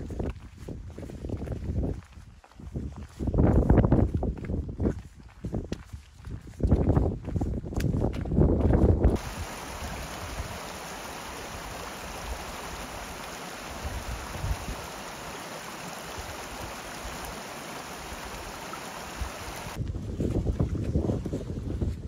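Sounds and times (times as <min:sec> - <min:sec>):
running water hiss: 0:09.2 - 0:19.8.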